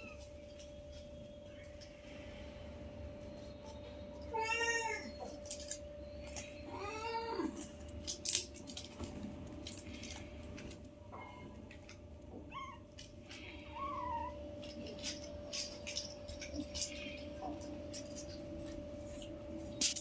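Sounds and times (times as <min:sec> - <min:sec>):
sharp clicks and rustles: 0:07.5 - 0:11.0, 0:14.4 - 0:20.0.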